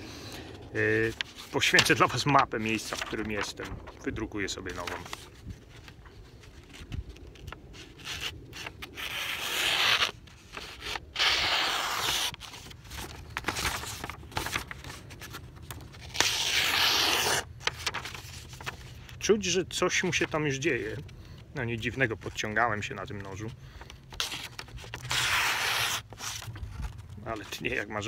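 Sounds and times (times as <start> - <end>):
paper rustling and crackling: 0.6 - 28.0
knife slicing paper: 7.7 - 15.1, 16.0 - 18.8, 24.1 - 26.5.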